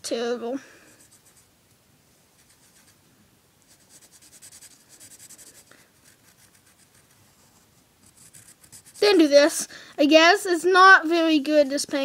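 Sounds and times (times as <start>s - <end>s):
pencil scratching on paper: 0.9s - 1.5s, 2.4s - 3.0s, 3.7s - 9.3s.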